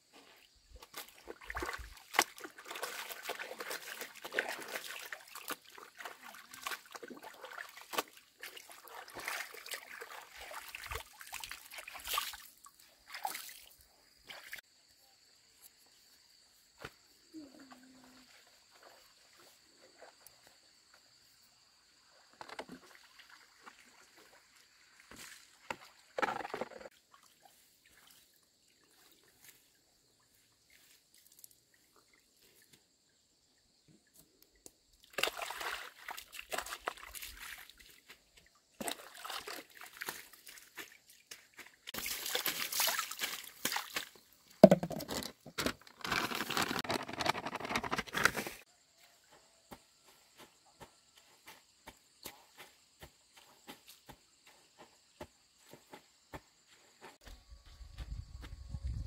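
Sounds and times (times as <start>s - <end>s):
water splashing and sloshing: 0.1s - 14.6s, 22.2s - 32.7s, 34.6s - 48.7s.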